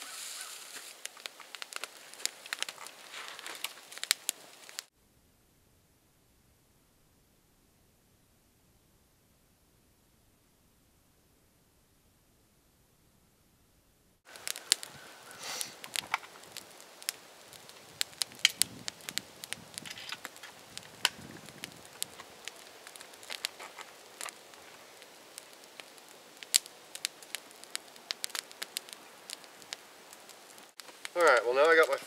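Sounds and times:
soft rustles: 0.0 - 4.1
twig fire crackling and popping: 0.0 - 4.9, 14.2 - 32.0.

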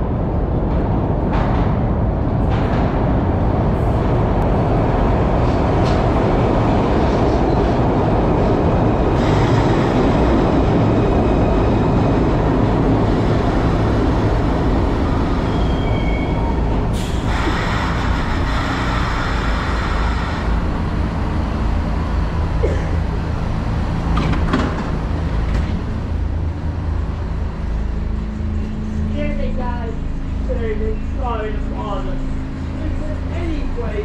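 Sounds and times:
subway train rumbling to a stop: 0.0 - 34.0
brake squeals: 15.3 - 20.5.

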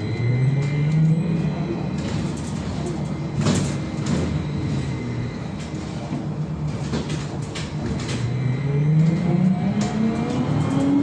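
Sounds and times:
trolleybus hum and road noise: 0.0 - 11.0
body knocks and rattles: 5.6 - 8.3.

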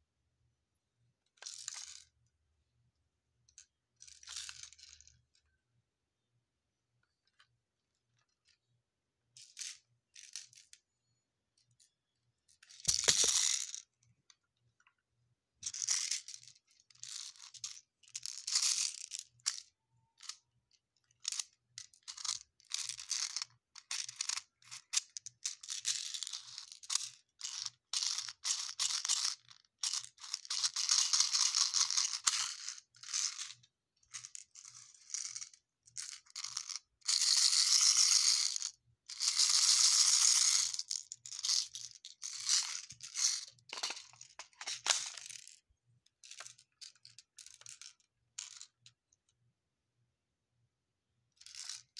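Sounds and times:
bbs rattling: 12.9 - 13.8, 39.2 - 45.6.

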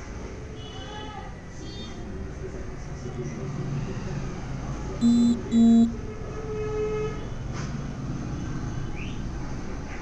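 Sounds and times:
faint held tone: 5.0 - 5.9
loud short beeps: 5.0 - 5.9.

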